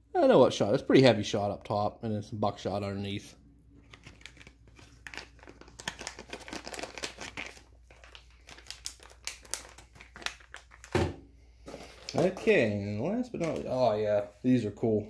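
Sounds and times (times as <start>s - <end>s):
plastic bag crinkling: 3.8s - 11.0s.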